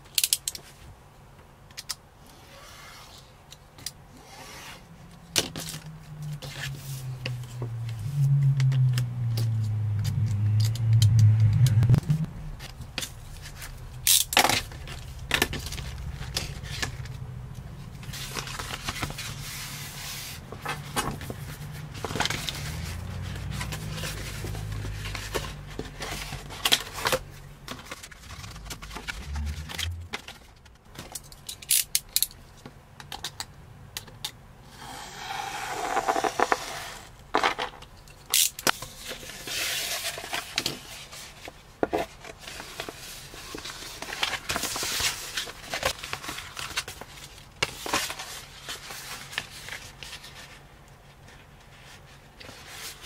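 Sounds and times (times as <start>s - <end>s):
vinyl film rustling and crackling: 8.6s - 31.7s, 38.6s - 53.0s.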